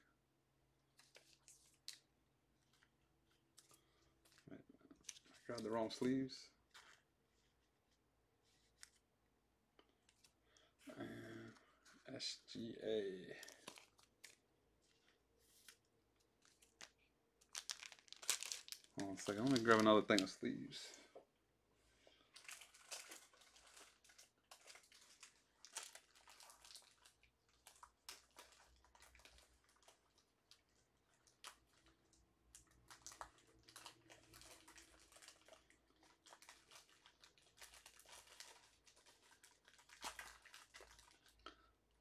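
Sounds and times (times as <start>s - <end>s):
plastic packaging crinkling: 13.2s - 15.8s, 16.4s - 20.9s, 22.3s - 41.5s.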